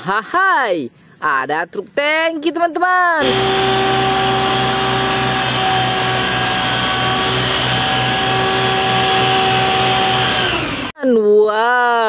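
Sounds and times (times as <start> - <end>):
pump whine and throb: 3.2 - 11.0.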